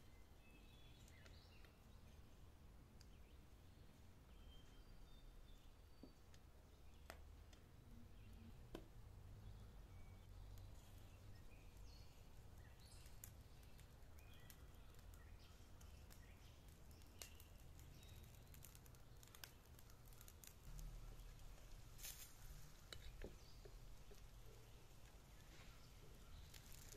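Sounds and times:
faint bird chirps: 3.1 - 7.1, 9.4 - 26.9.

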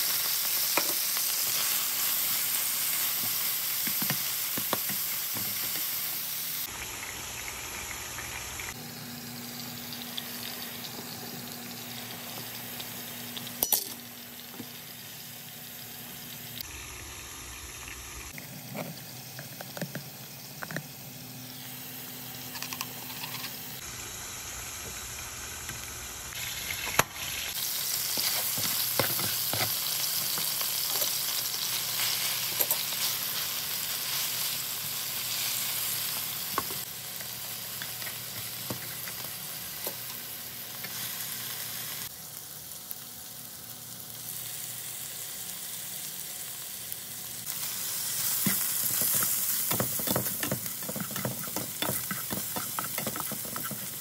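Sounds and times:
food sizzling in a pan: 0.0 - 54.0
spatula scraping a pan: 48.3 - 54.0.

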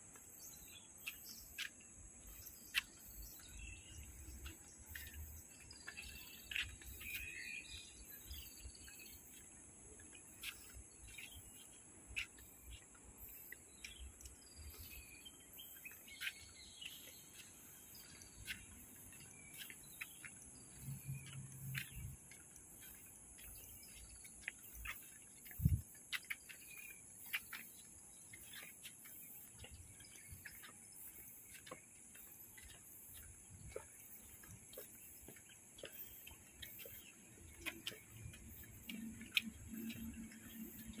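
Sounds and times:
birds chirping: 0.0 - 41.0.

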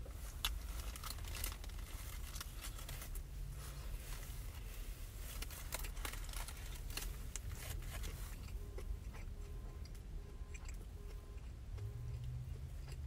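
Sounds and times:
steady low hum: 0.0 - 13.0
chewing food: 5.5 - 13.0.

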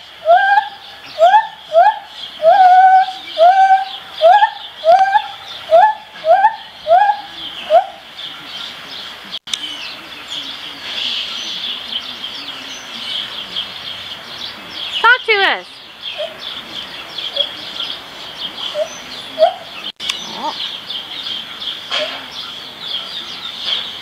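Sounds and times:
gibbon whooping hoots: 0.2 - 8.0.

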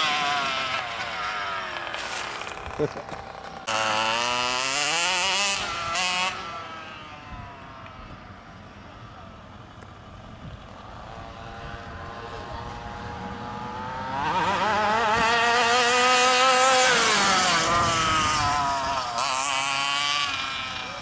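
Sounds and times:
small two-stroke engine revving: 0.0 - 21.0.

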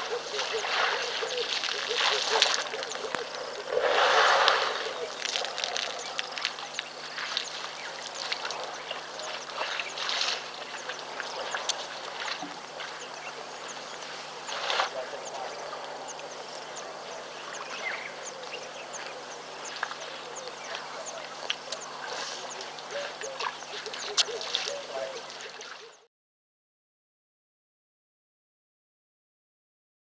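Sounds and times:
birds calling: 0.0 - 26.1
duck-like calls: 0.0 - 26.1.

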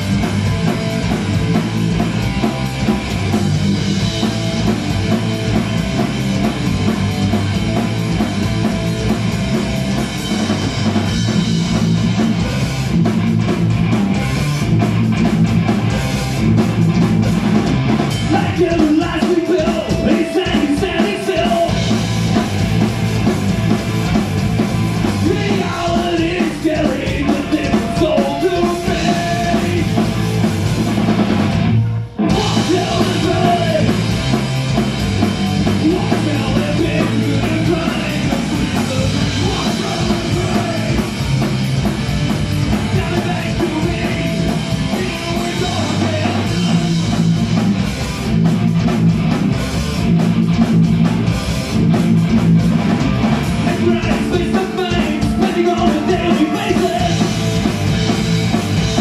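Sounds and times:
drum kit: 0.0 - 59.0
electric guitars: 0.0 - 59.0
person singing: 18.3 - 21.9, 25.2 - 30.2, 32.3 - 34.0, 35.8 - 41.2, 42.8 - 46.8, 53.6 - 57.4.

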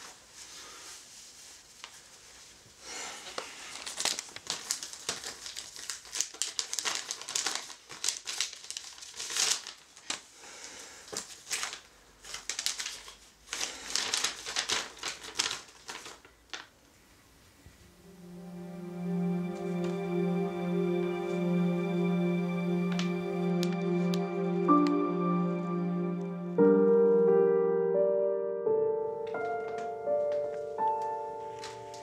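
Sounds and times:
paper rustling and crinkling: 0.0 - 16.9, 29.3 - 32.0.

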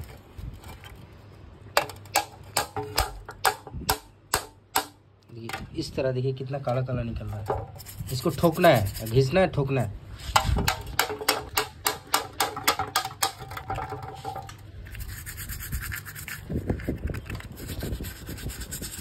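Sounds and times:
scratchy brushing: 7.3 - 9.4, 14.0 - 19.0.

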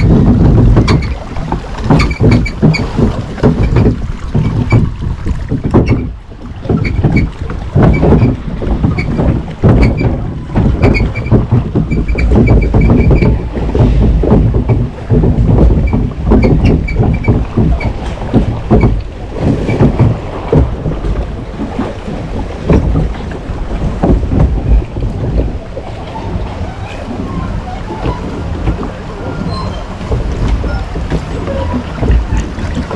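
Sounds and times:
churning splashing water: 0.0 - 32.9
wind buffeting microphone: 0.0 - 32.9.

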